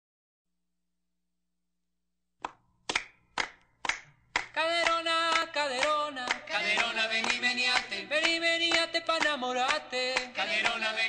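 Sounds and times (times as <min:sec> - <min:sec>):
hand claps: 0:02.4 - 0:11.0.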